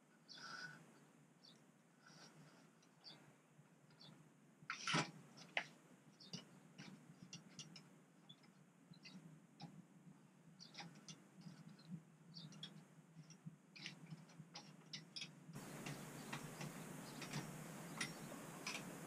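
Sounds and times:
background hiss: 0.0 - 19.0
light clicks and taps: 10.6 - 19.0.

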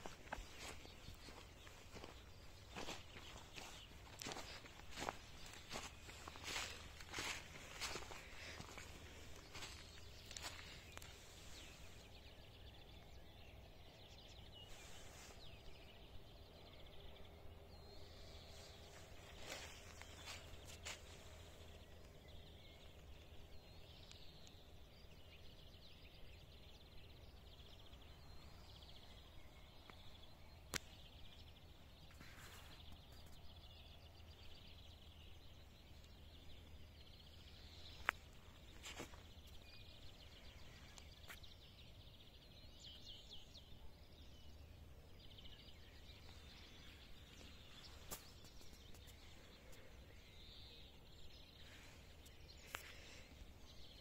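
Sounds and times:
distant songbirds chirping: 0.0 - 54.0.

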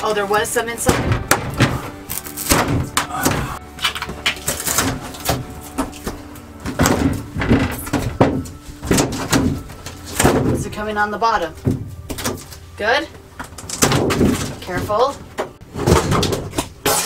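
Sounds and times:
plastic panel scraping and crackling: 13.4 - 17.0.

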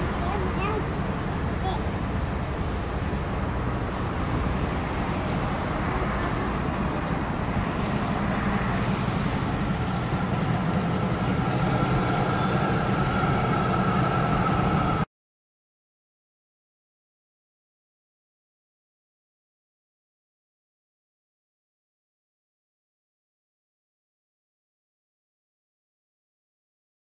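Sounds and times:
bus engine and road rumble: 0.0 - 15.1
faint whine: 3.9 - 15.1.

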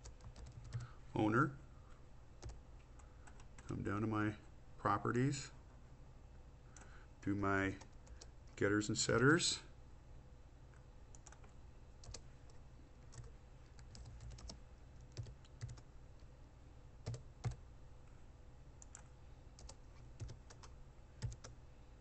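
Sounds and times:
computer keyboard typing: 0.0 - 0.9, 11.2 - 12.2, 13.1 - 15.8, 17.0 - 17.6, 18.8 - 21.6.

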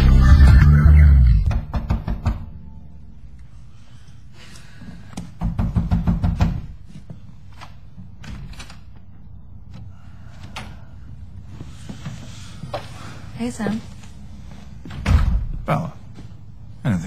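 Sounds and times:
rapid knocking on wooden door: 5.4 - 6.7.

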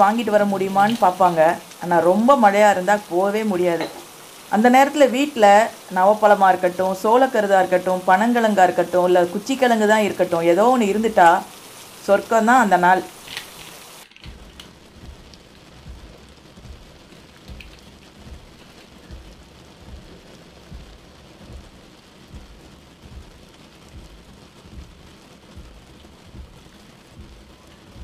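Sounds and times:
rain hissing: 0.0 - 28.0
low thuds: 14.3 - 28.0.

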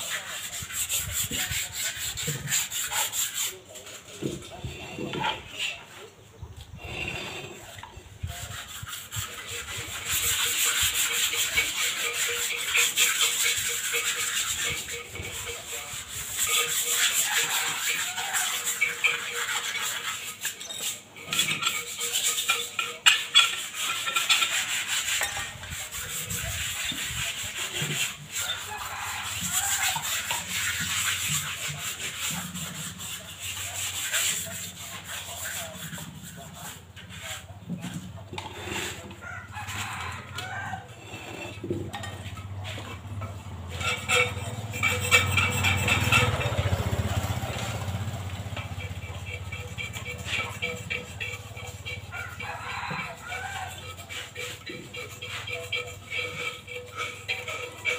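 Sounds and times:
scrubbing cement flower pots: 0.0 - 57.9.

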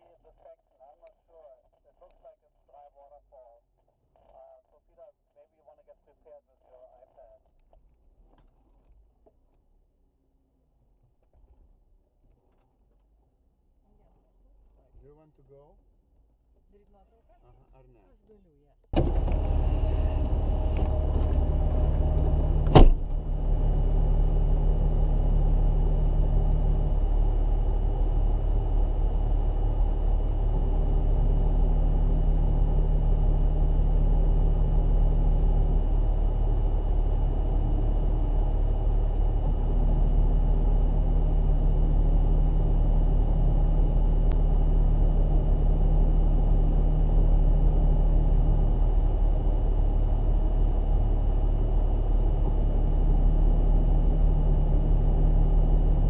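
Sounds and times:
car engine idling: 19.0 - 56.0.

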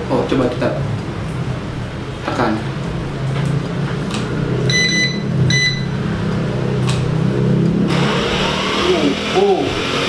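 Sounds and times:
short electronic beeps: 4.7 - 6.0.

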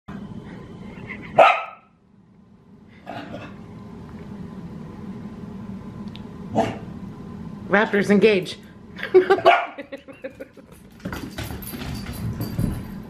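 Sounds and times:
dog barking: 1.4 - 1.9, 9.4 - 9.8.

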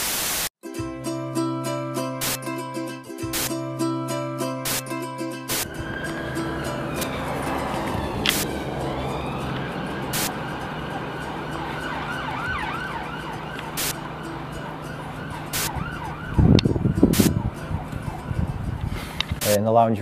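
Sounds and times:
siren wailing: 5.5 - 18.8
loud low rumbling: 5.6 - 19.3.

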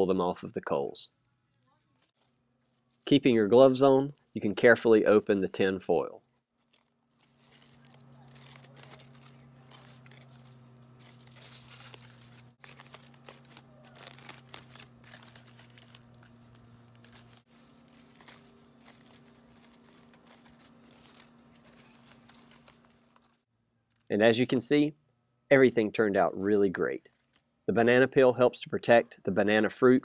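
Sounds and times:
faint low hum: 0.0 - 29.7
foil crinkling: 1.2 - 5.6, 6.2 - 24.1, 27.0 - 27.5.

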